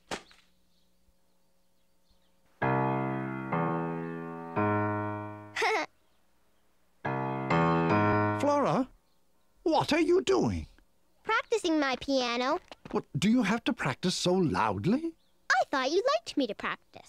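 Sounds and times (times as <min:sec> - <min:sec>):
loud piano chords: 0:02.6 - 0:05.6, 0:07.0 - 0:08.9.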